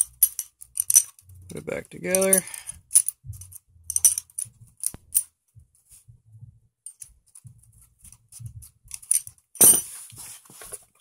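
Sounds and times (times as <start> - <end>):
metal clamp clicking and clinking: 0.0 - 1.3, 2.1 - 5.3, 6.8 - 7.2, 8.9 - 9.8.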